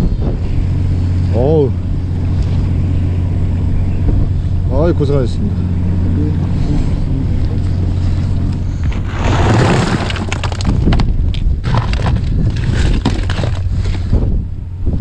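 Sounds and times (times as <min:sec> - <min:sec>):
boat engine droning: 0:00.0 - 0:15.0
cardboard crumpling against plastic box: 0:09.0 - 0:14.0.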